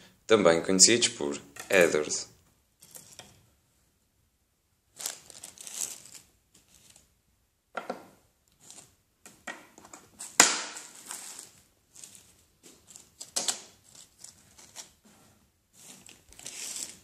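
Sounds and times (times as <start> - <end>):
plastic packaging crinkling: 4.9 - 7.1, 15.8 - 17.0.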